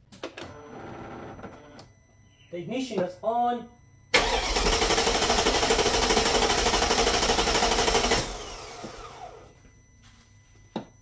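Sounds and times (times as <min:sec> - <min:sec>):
engine cranking by starter: 0:04.1 - 0:09.4.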